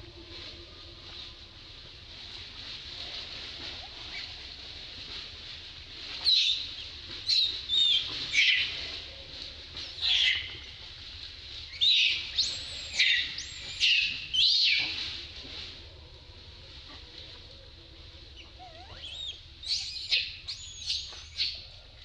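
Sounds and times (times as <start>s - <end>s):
baby monkey squealing: 18.6s - 21.5s.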